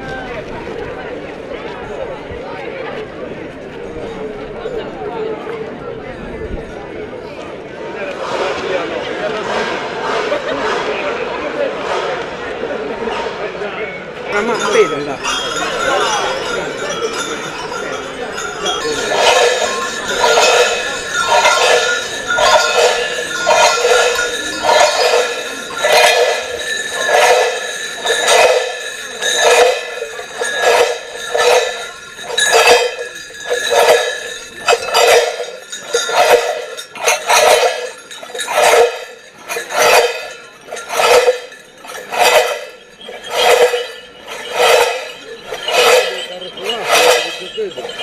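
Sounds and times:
heavy cowbells clanging: 14.3s - 48.0s.

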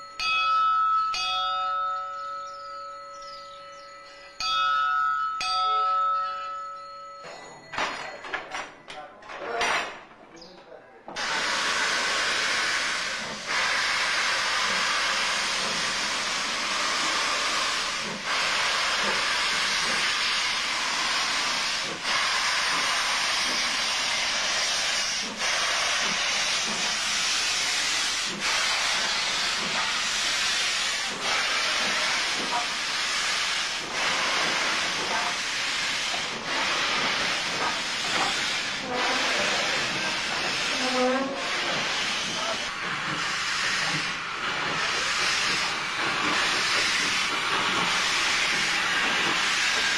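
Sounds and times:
locomotive steam hiss: 11.1s - 49.9s.

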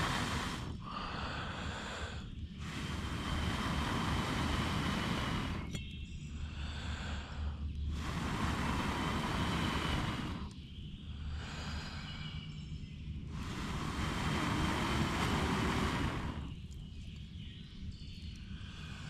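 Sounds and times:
person blowing on coals: 0.0s - 5.8s, 7.9s - 10.6s, 13.2s - 16.8s.

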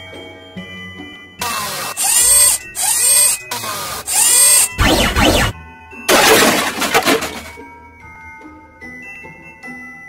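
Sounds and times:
cartoon whistle sound effects: 2.0s - 5.6s.

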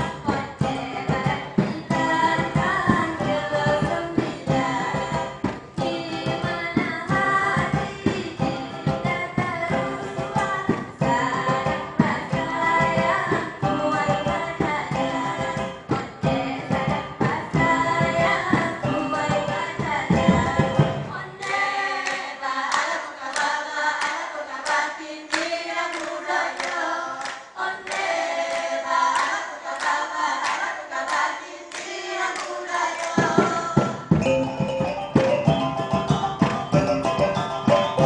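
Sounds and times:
low drums: 0.0s - 21.2s.

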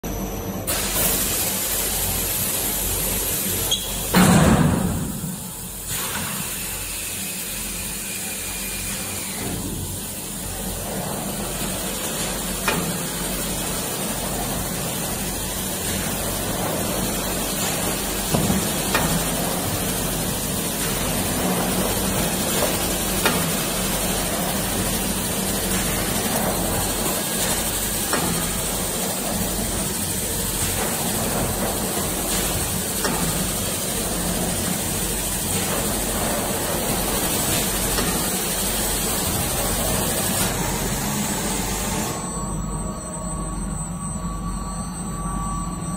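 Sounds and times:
machine hum and hiss: 0.0s - 45.9s.

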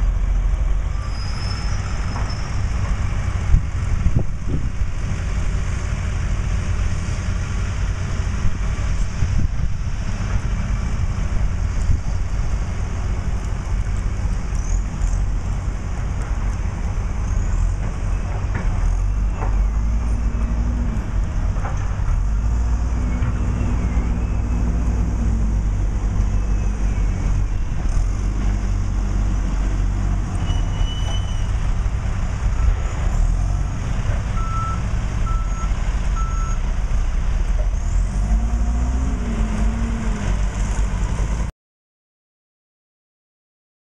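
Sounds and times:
construction equipment engines rumbling: 0.0s - 41.5s.

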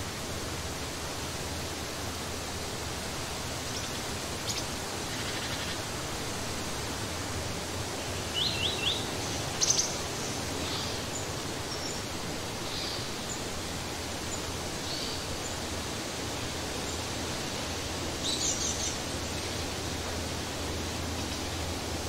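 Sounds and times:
steady background hiss: 0.0s - 22.0s
songbirds chirping: 7.6s - 22.0s.

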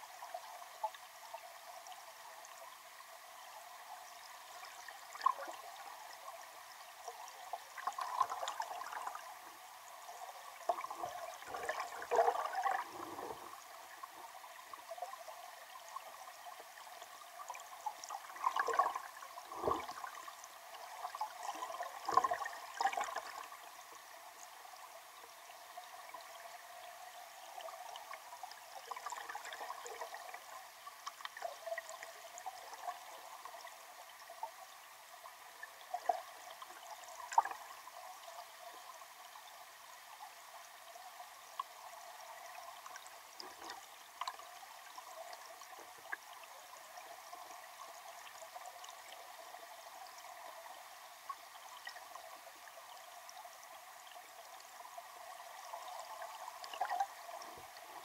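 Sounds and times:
muffled underwater water rushing: 4.0s - 25.1s.

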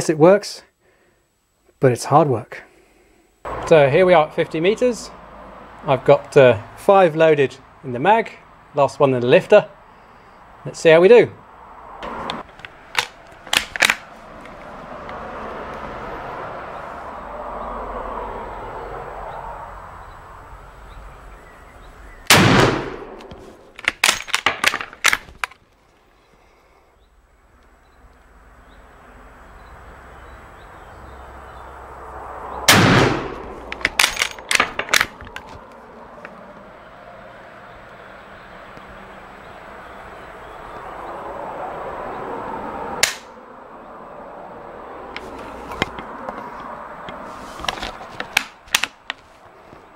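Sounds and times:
rifle bolt clacking: 12.4s - 14.6s, 22.3s - 25.6s, 32.8s - 35.6s, 43.0s - 43.3s, 48.2s - 49.2s
rifle shots: 22.3s - 25.2s, 32.7s - 35.2s.

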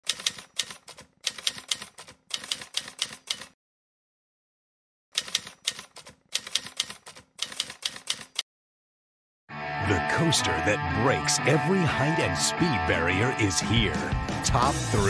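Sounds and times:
typewriter keys clattering: 0.0s - 3.6s, 5.2s - 8.4s.

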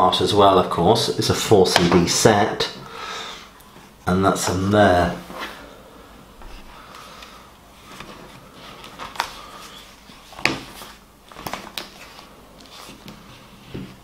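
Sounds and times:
soft rustling of cd case: 6.4s - 14.0s.

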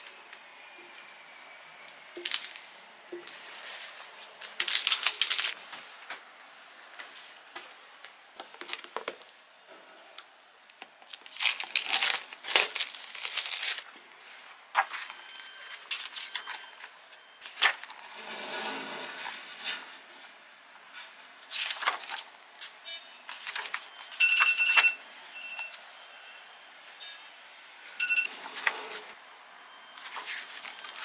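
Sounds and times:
plastic packaging crinkling: 2.2s - 2.6s, 4.2s - 5.6s, 10.7s - 13.9s.

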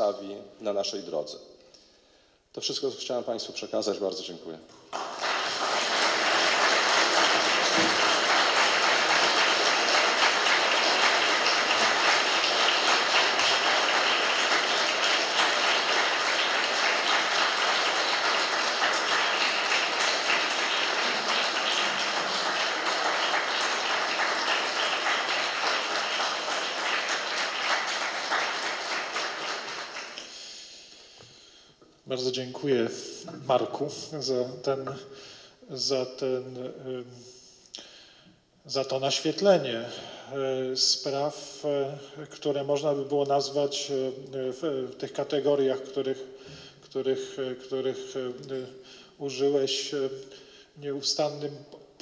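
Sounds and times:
audience applauding: 4.9s - 30.5s.

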